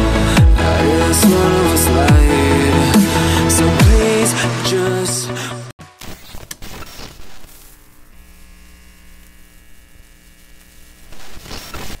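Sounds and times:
crackle and clicks: 0:06.0 - 0:12.0
steady electrical hum: 0:07.3 - 0:12.0.

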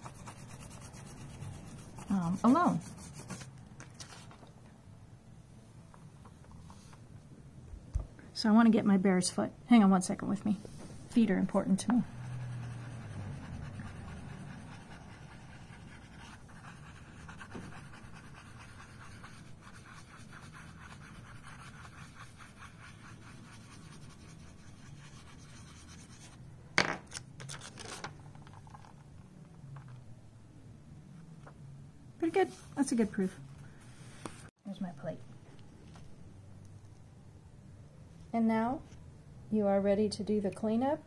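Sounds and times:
scratchy rubbing on paper: 0:00.0 - 0:04.2, 0:11.8 - 0:26.4.

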